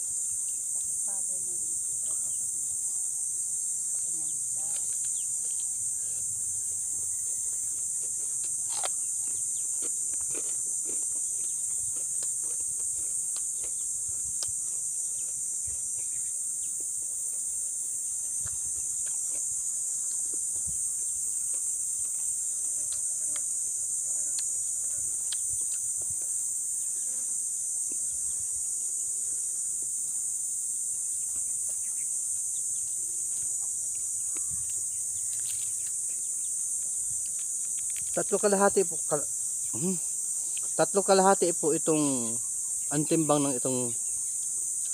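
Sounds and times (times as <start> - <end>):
high-pitched insect drone: 0.0 - 44.9
chewing crunches: 7.1 - 16.1, 18.4 - 20.6, 25.2 - 26.3, 33.9 - 38.4.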